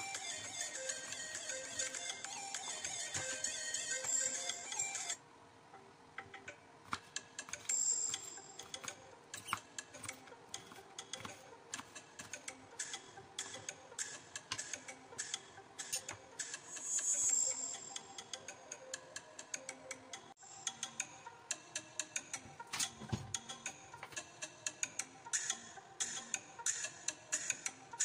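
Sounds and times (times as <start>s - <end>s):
background music: 0.0s - 28.0s
slices scraping: 6.9s - 12.9s.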